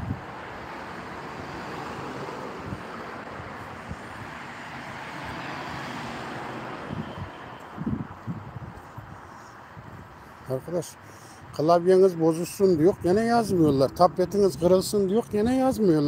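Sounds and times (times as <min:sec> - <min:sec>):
cars driving past: 0:00.0 - 0:12.3.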